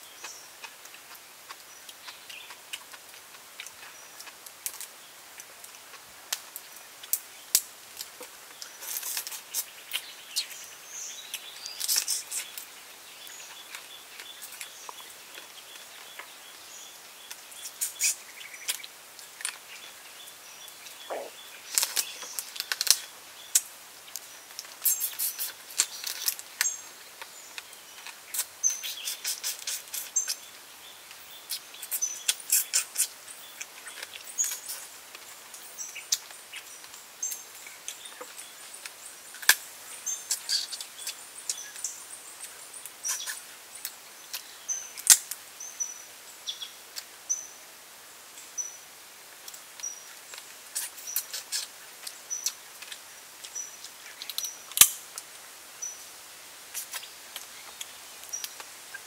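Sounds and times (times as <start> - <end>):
forest hiss: 16.4 - 59.0
bird chirps: 20.6 - 22.4.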